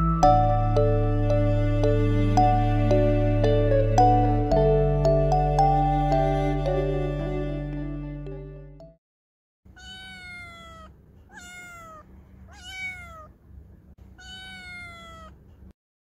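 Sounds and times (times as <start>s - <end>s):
cat meowing: 9.7s - 13.4s, 14.1s - 15.4s.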